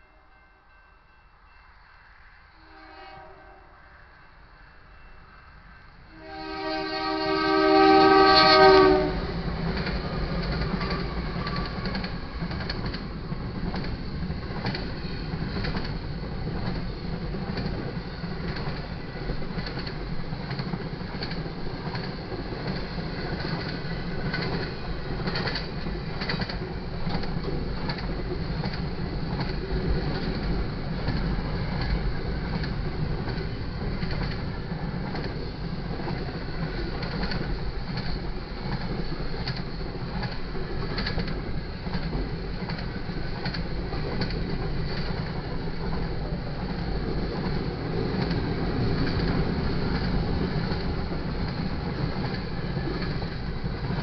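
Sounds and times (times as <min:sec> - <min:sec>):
freight train rumbling past: 0:00.0 - 0:54.0
locomotive horn: 0:02.6 - 0:03.9, 0:06.1 - 0:09.4
wheels clacking over rails: 0:09.5 - 0:54.0.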